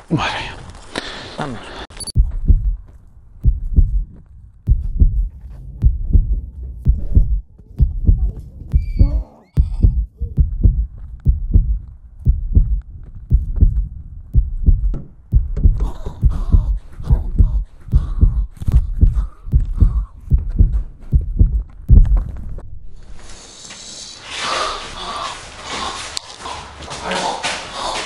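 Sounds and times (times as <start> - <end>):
rhythmic low thumps: 2.2 - 22.8.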